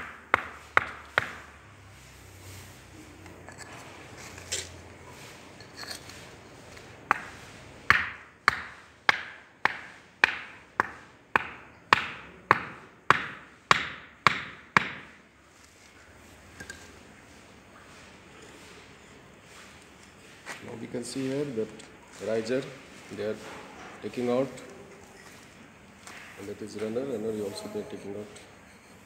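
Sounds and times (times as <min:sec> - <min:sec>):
wooden mallet knocking on wood: 0:00.0 - 0:01.4, 0:07.9 - 0:15.1.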